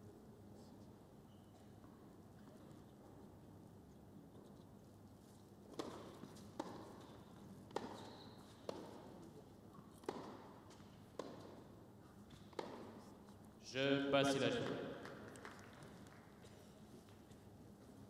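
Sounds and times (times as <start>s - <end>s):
tennis ball pops: 10.0s - 10.5s.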